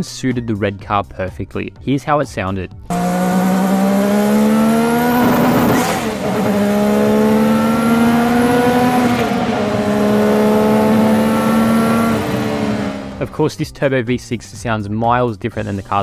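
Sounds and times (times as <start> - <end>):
race car engine at full throttle: 2.9 - 13.6.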